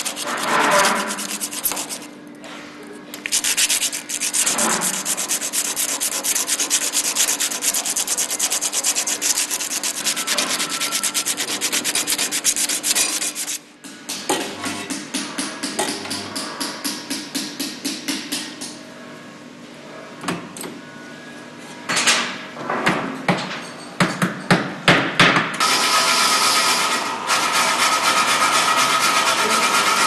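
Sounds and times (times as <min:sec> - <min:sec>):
rhythmic metal scraping: 0:00.0 - 0:02.1, 0:03.3 - 0:13.6, 0:27.5 - 0:30.0
machine noise with high tone: 0:00.0 - 0:02.3, 0:03.3 - 0:13.7, 0:25.6 - 0:30.0.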